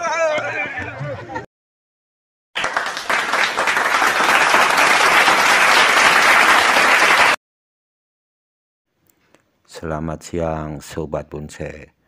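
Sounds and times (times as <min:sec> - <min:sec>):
crowd applause: 0:02.6 - 0:07.4.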